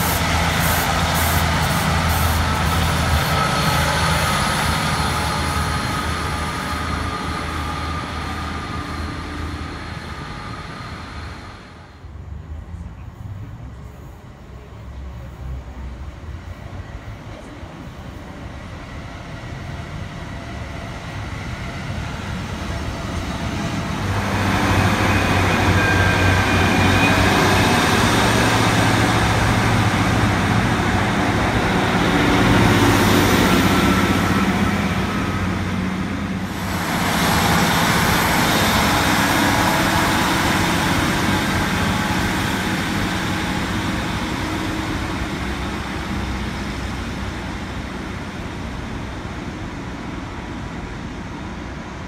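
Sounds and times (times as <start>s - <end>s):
train diesel engine: 0.0s - 52.0s.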